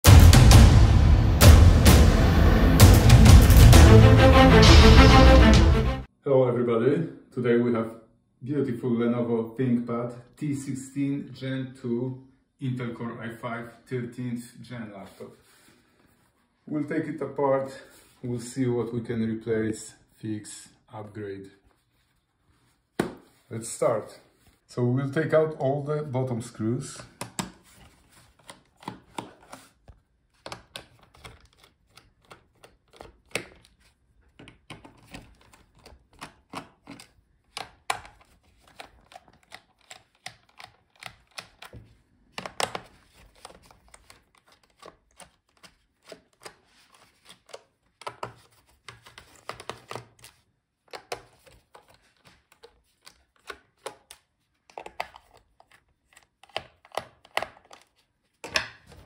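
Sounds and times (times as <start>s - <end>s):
tool and laptop handled: 27.2s - 59.0s.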